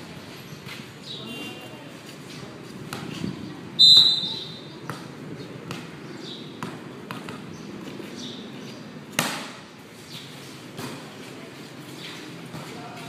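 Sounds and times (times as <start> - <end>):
ball bouncing on concrete: 2.8 - 3.4, 4.8 - 8.2, 9.1 - 9.6, 10.7 - 11.1, 12.4 - 13.0.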